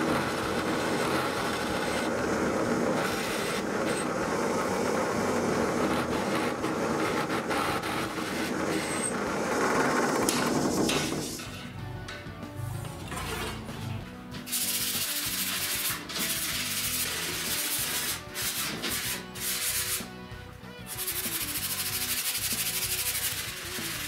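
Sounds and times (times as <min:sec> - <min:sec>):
sponge sanding wood: 0:14.6 - 0:20.1, 0:20.9 - 0:24.0.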